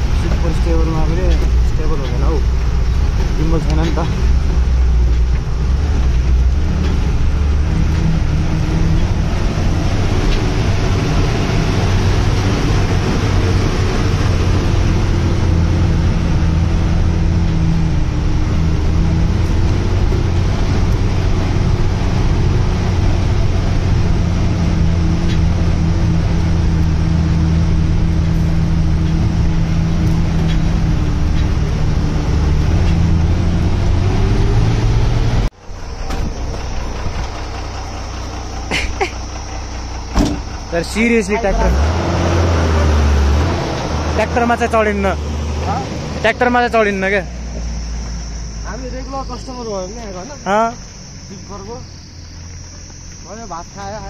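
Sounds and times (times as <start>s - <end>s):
diesel engine droning: 0.0s - 54.0s.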